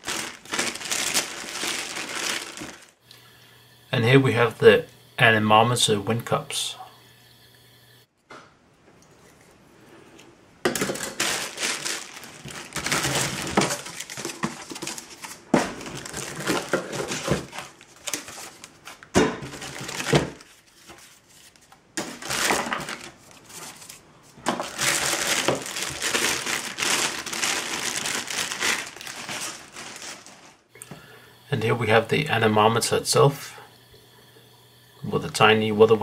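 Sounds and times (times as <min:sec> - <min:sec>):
plastic bags crinkling: 0:00.0 - 0:03.0, 0:10.6 - 0:20.9, 0:21.5 - 0:30.7.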